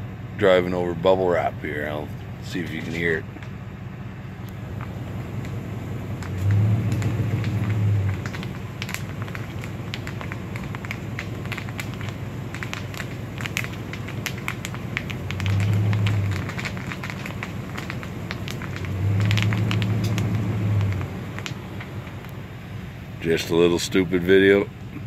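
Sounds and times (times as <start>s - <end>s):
car tyres rolling on dirt road: 0.0s - 25.0s
low rumble: 0.0s - 25.0s
seeds popping under tyres: 0.4s - 25.0s.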